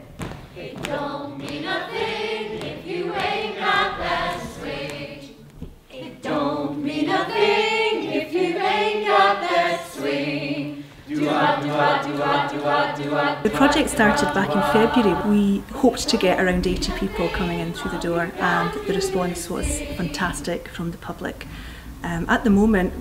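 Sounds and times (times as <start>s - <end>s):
choir singing: 0.0s - 20.6s.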